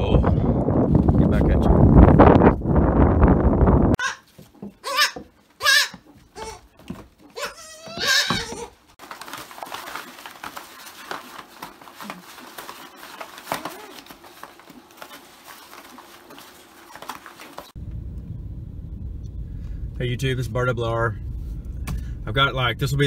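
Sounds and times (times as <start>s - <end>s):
rustling and shuffling: 0.5s - 17.9s
goat kid bleating: 4.0s - 6.7s, 7.3s - 8.8s
vehicle engine running low: 17.8s - 23.0s.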